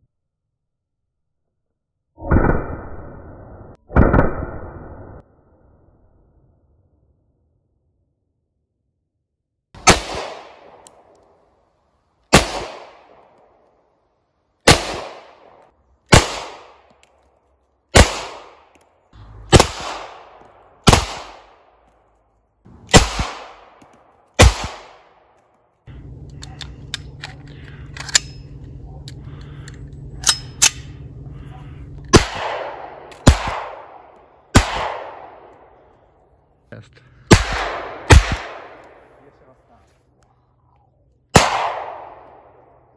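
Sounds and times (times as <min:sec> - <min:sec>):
blank pistol shots: 0:09.8 - 0:10.8, 0:12.3 - 0:13.2, 0:14.6 - 0:15.5, 0:16.1 - 0:16.8, 0:17.9 - 0:18.7, 0:19.5 - 0:21.6, 0:22.9 - 0:23.8, 0:24.4 - 0:25.2, 0:32.1 - 0:35.5, 0:37.3 - 0:39.0, 0:41.3 - 0:42.3.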